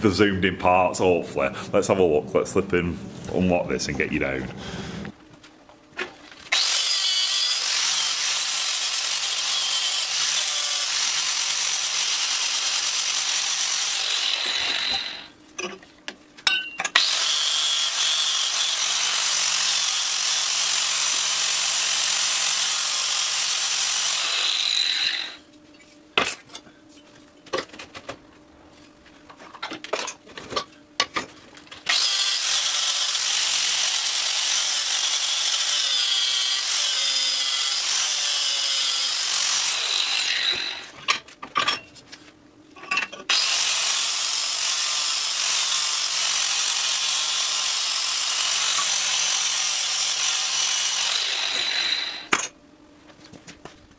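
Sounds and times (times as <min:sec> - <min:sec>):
angle grinder grinding metal: 0:06.5 - 0:15.3, 0:16.9 - 0:25.8, 0:31.9 - 0:41.2, 0:43.3 - 0:52.5.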